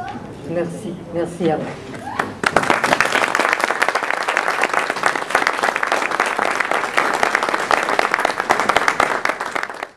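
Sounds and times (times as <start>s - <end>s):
audience applause: 2.2s - 9.9s.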